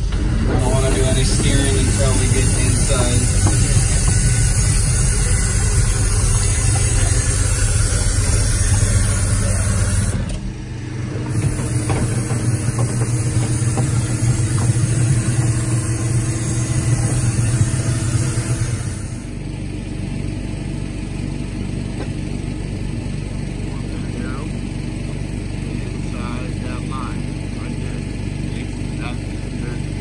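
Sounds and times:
directional drill running: 0.0s - 19.5s.

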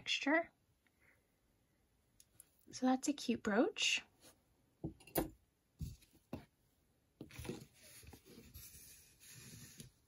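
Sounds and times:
jewelry knocking and clicking: 4.8s - 5.4s.

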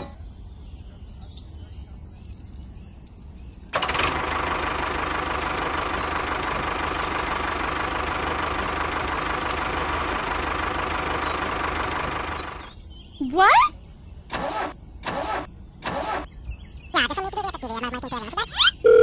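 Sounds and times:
model tractor motor whining: 3.8s - 12.7s.

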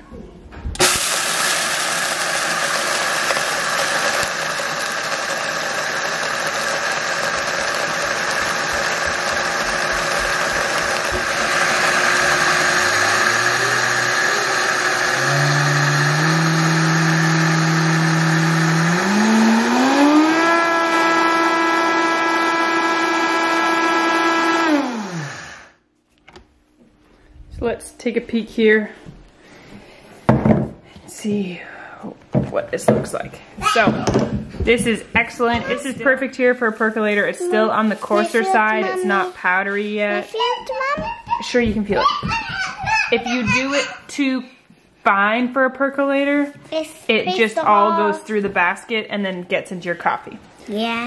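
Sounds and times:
coffee beans rattling in blender: 0.8s - 25.6s
blender motor whine: 0.8s - 25.8s.

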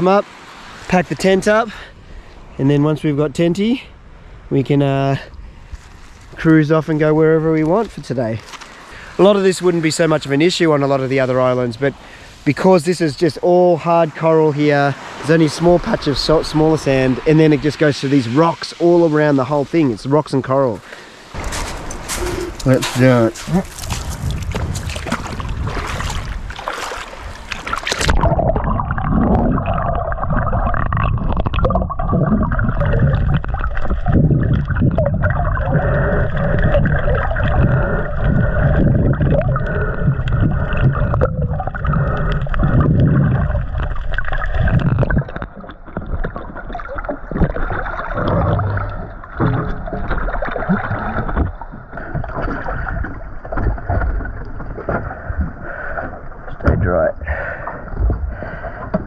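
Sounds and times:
muffled underwater rushing: 5.8s - 59.0s
splashing in shallow water: 21.1s - 56.5s.

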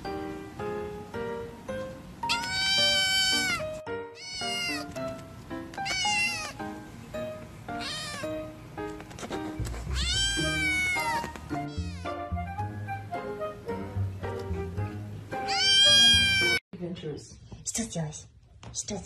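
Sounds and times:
background music: 0.0s - 16.6s
kitten meowing: 2.3s - 5.0s, 5.8s - 6.6s, 7.7s - 8.4s, 9.9s - 12.2s, 15.4s - 16.6s.

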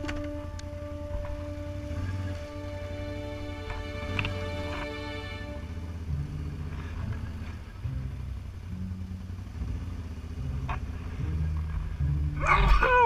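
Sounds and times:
quad bike engine running: 5.5s - 13.0s.

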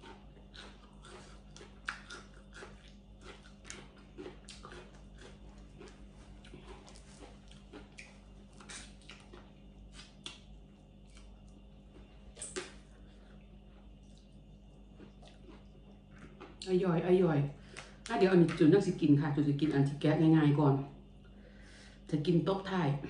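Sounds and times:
person chewing crab: 0.0s - 16.7s.

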